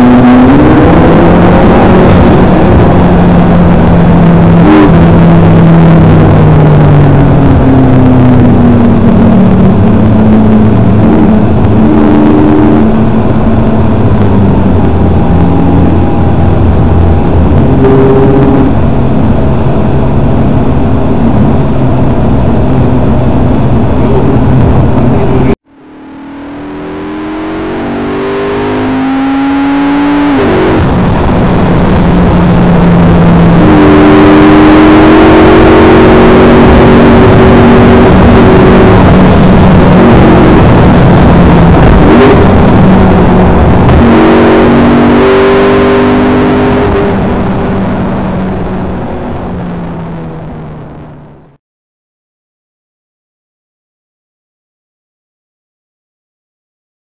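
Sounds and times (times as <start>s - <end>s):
car engine from inside cabin: 0.0s - 51.5s.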